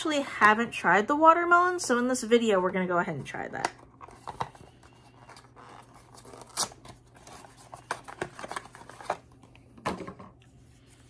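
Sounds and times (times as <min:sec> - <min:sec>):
packaging rustling: 0:03.8 - 0:09.5.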